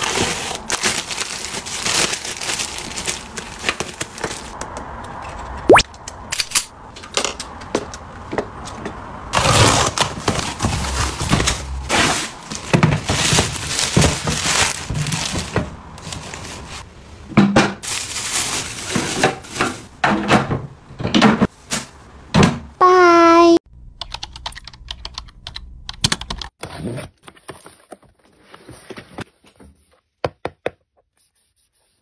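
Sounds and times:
plastic film crinkling: 0.0s - 4.6s, 12.5s - 16.8s.

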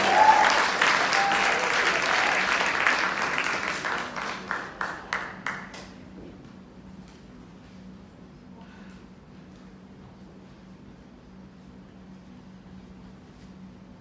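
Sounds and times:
audience cheer: 0.0s - 3.1s
audience applause: 0.0s - 5.9s
low steady hum: 0.0s - 14.0s.

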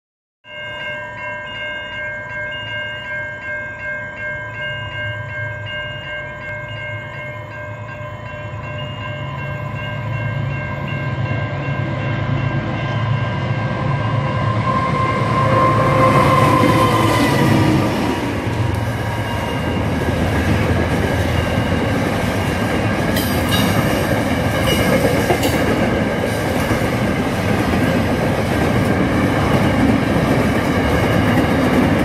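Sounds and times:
railroad crossing bells ringing: 0.4s - 32.0s
freight train rumble: 5.2s - 32.0s.

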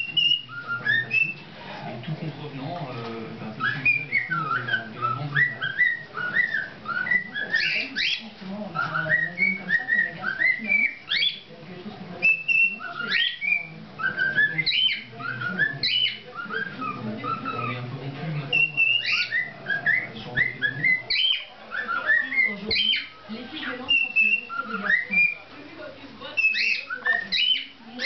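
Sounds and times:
cockatiel whistling: 0.0s - 1.4s, 3.6s - 11.5s, 12.2s - 17.8s, 18.5s - 25.4s, 26.4s - 28.0s.

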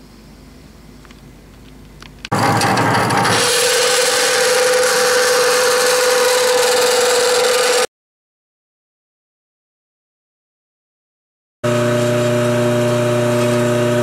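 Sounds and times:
band saw cutting steel: 2.3s - 7.9s.

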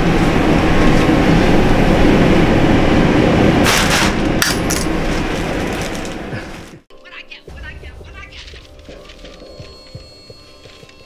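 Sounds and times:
plastic bag rustling: 4.9s - 6.6s.

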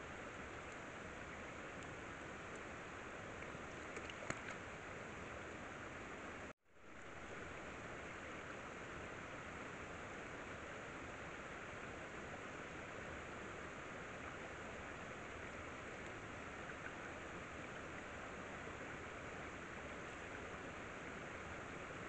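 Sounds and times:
steady background hiss: 0.0s - 22.0s
faint clicks: 1.8s - 2.7s, 3.4s - 4.6s.

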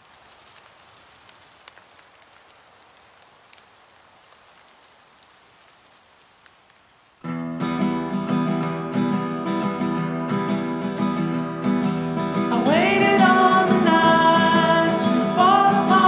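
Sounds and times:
water drips ticking: 0.0s - 6.8s
rain hiss: 0.0s - 16.0s
acoustic guitar strumming: 7.3s - 16.0s.

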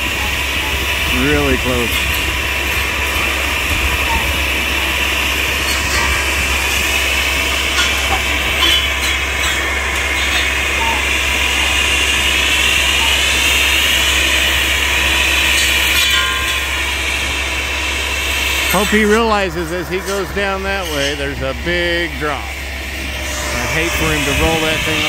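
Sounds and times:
vehicle engine running: 0.0s - 25.0s
whining tone: 0.0s - 25.0s
spinning saw head: 18.5s - 22.2s.

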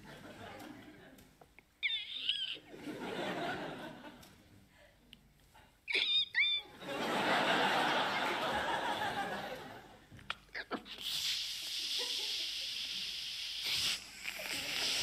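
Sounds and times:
audience laughing: 0.0s - 1.2s, 2.5s - 4.3s, 6.7s - 10.0s
whistle-like vocal calls: 1.8s - 2.6s, 5.9s - 6.7s
hiss made by mouth: 10.3s - 15.0s.

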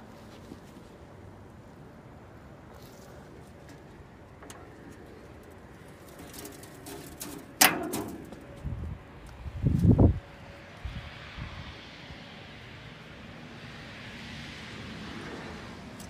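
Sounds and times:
quiet handling noise: 2.7s - 9.4s
metal hood clacking and rattling: 4.4s - 8.6s.

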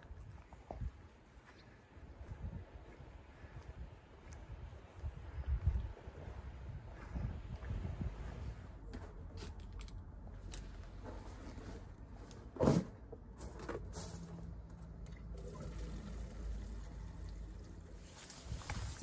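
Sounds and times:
water running into bottle: 15.2s - 19.0s.

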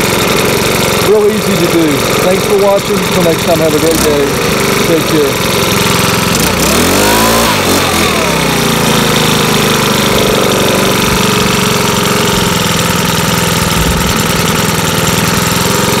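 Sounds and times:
leaf blower engine idling: 0.0s - 16.0s.

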